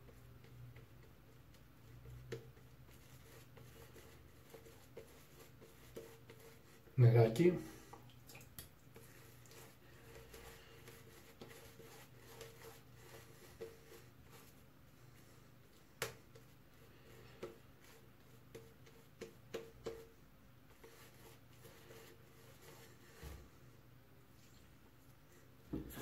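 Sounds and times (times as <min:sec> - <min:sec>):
shaving brush squishing lather: 0:01.3 - 0:23.2.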